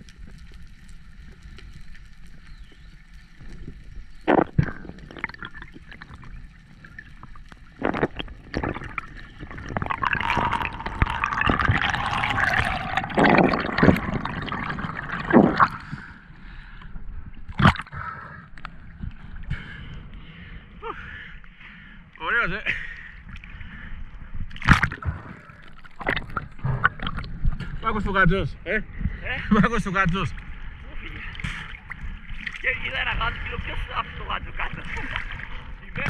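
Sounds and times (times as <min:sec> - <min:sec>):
underwater bubbling: 0:00.0 - 0:22.2, 0:23.0 - 0:27.8, 0:30.3 - 0:36.0.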